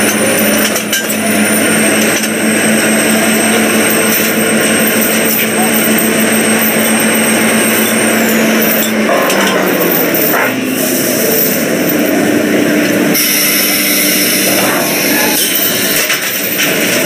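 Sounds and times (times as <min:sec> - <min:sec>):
drilling rig machinery drone: 0:00.0 - 0:17.0
high whine: 0:00.0 - 0:17.0.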